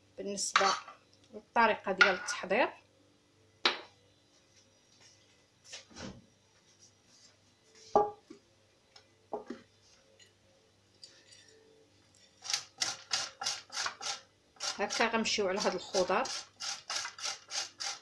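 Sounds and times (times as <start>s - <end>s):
kitchenware clinking on countertop: 0.6s - 1.0s.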